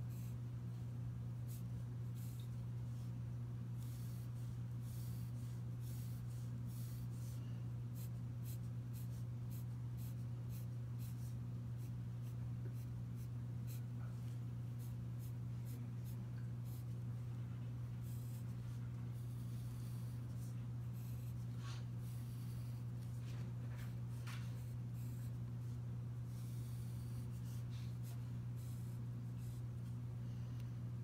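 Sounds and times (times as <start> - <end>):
steady low hum: 0.0 - 31.0
pencil scratching on paper: 3.8 - 13.9, 18.0 - 23.2, 24.5 - 29.7.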